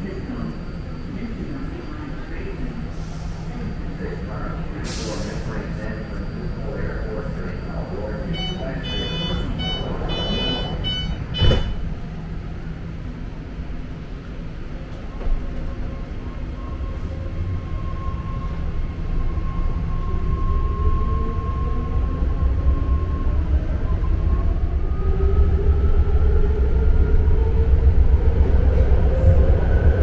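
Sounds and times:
train rumble: 0:00.0 - 0:30.0
short warning beeps: 0:08.3 - 0:11.9
sharp thud: 0:11.4 - 0:11.8.

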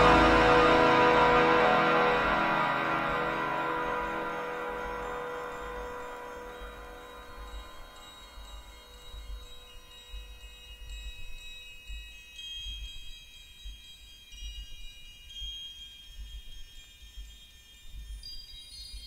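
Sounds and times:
ambient electronic music: 0:00.0 - 0:08.2.

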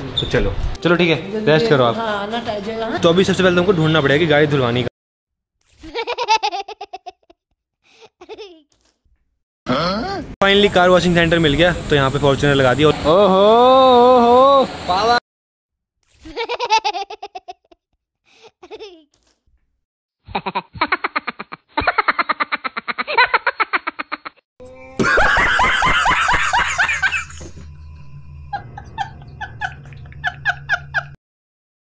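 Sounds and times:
cartoonish laughter: 0:05.7 - 0:07.4, 0:08.1 - 0:08.7, 0:16.2 - 0:17.8, 0:18.4 - 0:19.2, 0:20.3 - 0:24.4, 0:25.0 - 0:27.4, 0:28.5 - 0:31.2.

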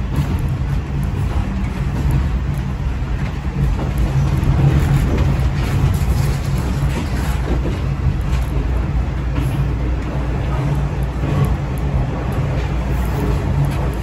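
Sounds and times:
train running and rail noise: 0:00.0 - 0:14.0.

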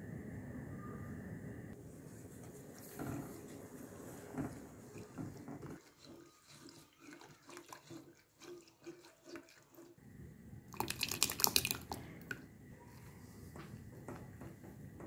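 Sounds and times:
whisk stirring milk in a pot: 0:02.8 - 0:10.0
wet splashing of poured yogurt: 0:10.7 - 0:12.0.

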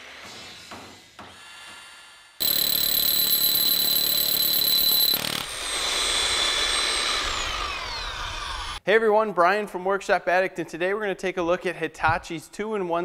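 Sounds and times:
rotary hammer drilling into concrete: 0:02.4 - 0:08.8.

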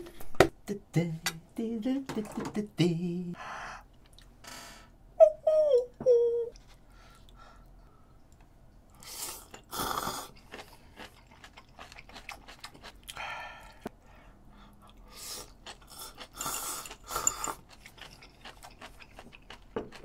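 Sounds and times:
chewing: 0:08.9 - 0:13.8, 0:14.8 - 0:20.0.

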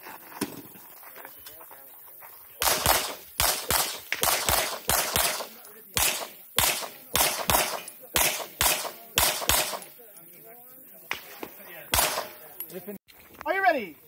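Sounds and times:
pistol shots: 0:02.6 - 0:10.0, 0:11.1 - 0:12.4.

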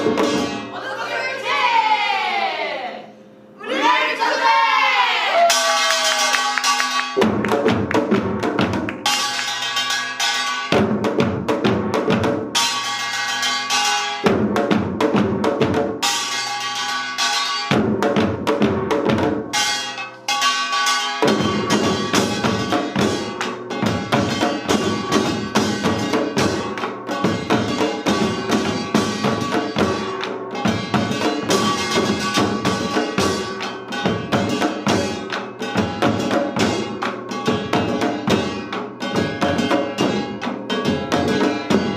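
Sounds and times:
hourglass drums and barrel drums: 0:00.0 - 0:01.5, 0:05.4 - 0:41.9
ringing gongs: 0:19.6 - 0:35.9.

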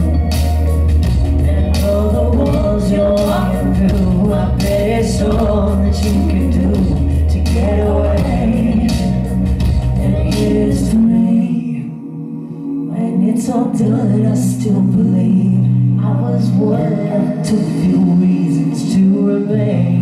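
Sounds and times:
deep bass: 0:00.0 - 0:11.5
musical backing: 0:00.0 - 0:20.0
women singing into microphones: 0:01.4 - 0:20.0.

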